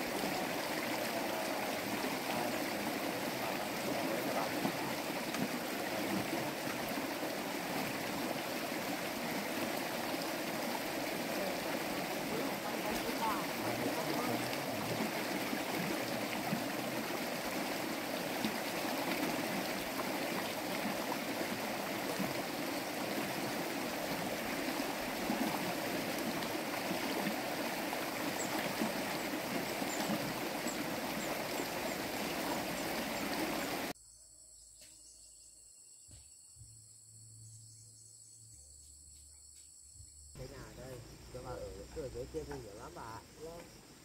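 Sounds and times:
fast-flowing stream rushing: 0.0 - 33.9.

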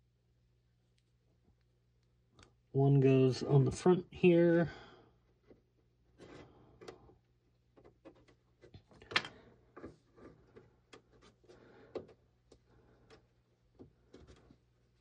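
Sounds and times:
plastic parts clicking and tapping: 6.2 - 14.6.

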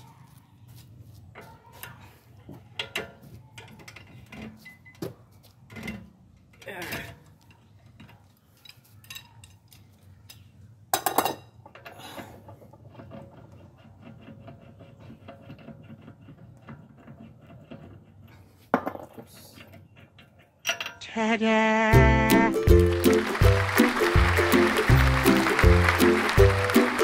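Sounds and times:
background music with a beat: 21.9 - 27.0.

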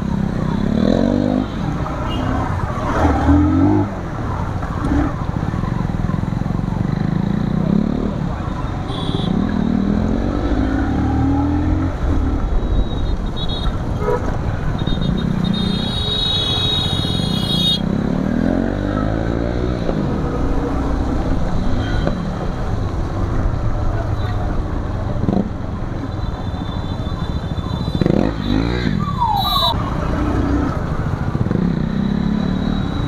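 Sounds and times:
road and wind noise: 0.0 - 33.0
vehicle horn: 8.9 - 9.4, 13.0 - 17.8.

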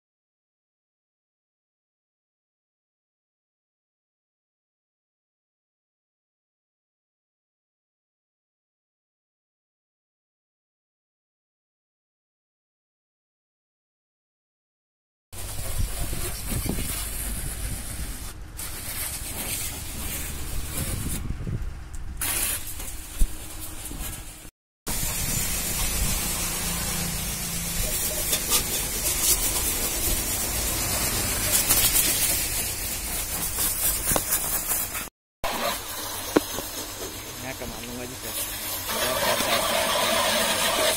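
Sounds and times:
pressure washer spraying: 15.4 - 21.3, 22.2 - 40.9.

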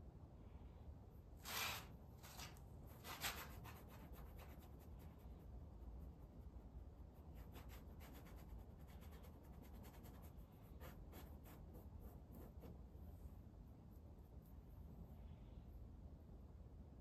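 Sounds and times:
paintbrush scratching on canvas: 1.4 - 12.9.

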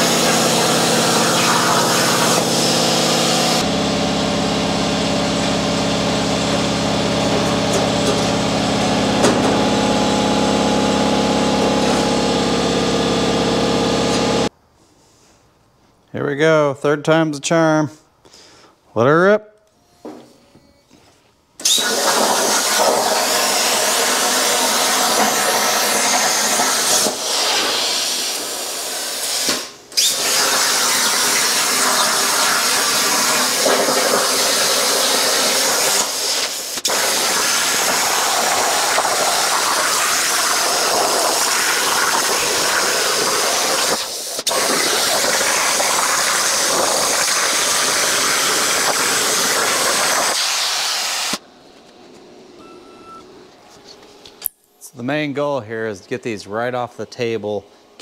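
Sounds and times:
plasma torch arc hissing: 21.6 - 51.4.

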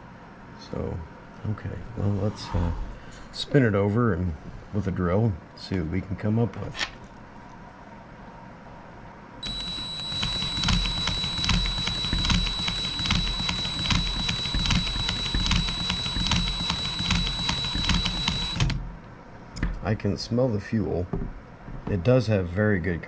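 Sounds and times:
cordless drill whining: 9.4 - 18.8.

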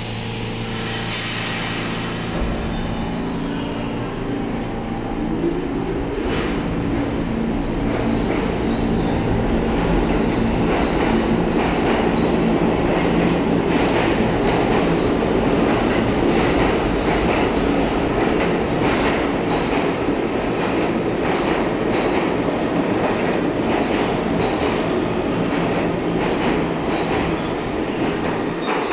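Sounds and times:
train motor hum: 0.0 - 19.5
train wheels clattering on rails: 6.0 - 28.9.

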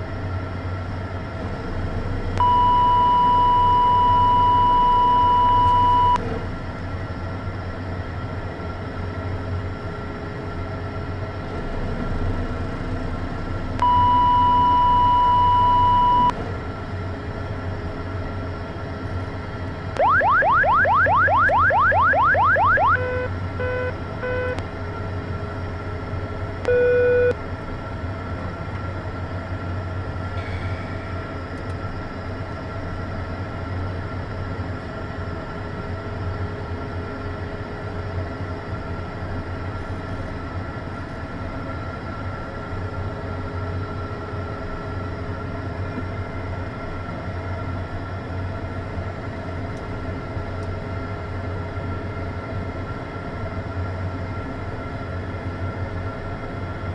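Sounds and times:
electrical hum with high whine: 0.0 - 56.9
cockpit warning beeps: 2.4 - 6.2, 13.8 - 16.4, 20.0 - 24.6, 26.6 - 27.4.

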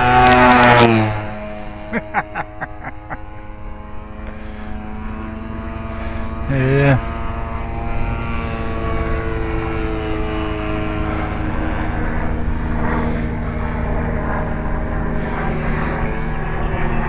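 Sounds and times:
model plane engine droning: 0.0 - 17.0.

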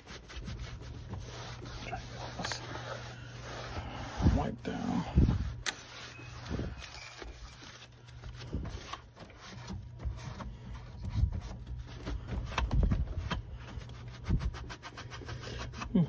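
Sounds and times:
rag wiping metal: 0.0 - 12.5
steady low hum: 0.0 - 16.0.

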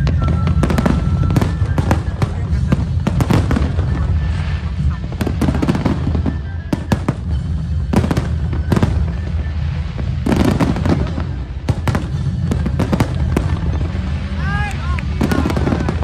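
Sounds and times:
fireworks bangs and crackles: 0.0 - 16.0
steady low rumble: 0.0 - 16.0.

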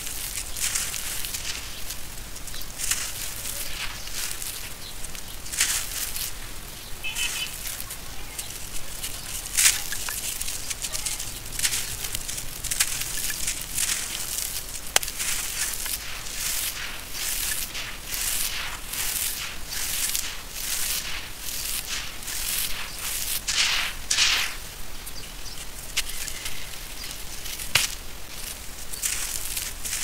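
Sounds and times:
sharp cracks: 8.4 - 24.7, 27.6 - 28.1.

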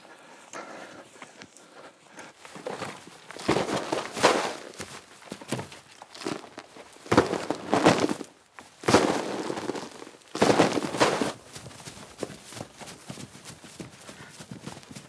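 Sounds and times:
footsteps running through grass: 2.4 - 15.0
rustling crashes through dry leaves: 3.4 - 4.9, 7.1 - 11.4.

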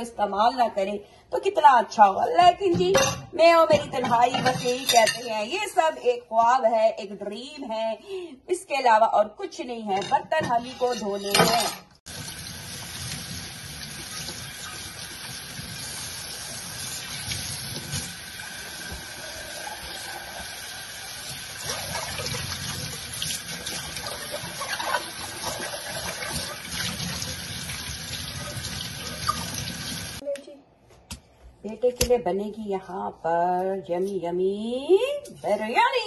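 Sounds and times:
faucet running into sink: 12.1 - 30.2.

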